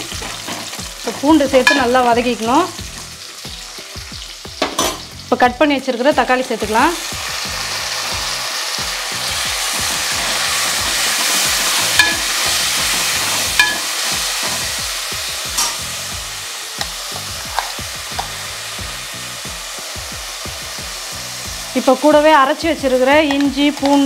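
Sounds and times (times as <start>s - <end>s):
tomatoes sizzling in hot oil: 0.0s - 24.0s
spoon clinking against pot: 1.6s - 1.9s, 11.9s - 12.3s, 13.6s - 13.9s, 15.6s - 15.8s.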